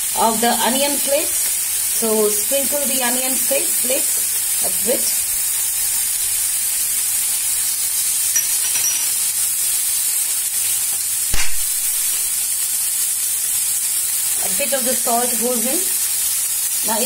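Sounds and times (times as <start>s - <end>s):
vegetables sizzling in oil: 0.0s - 17.0s
sharp knock: 11.3s - 11.8s.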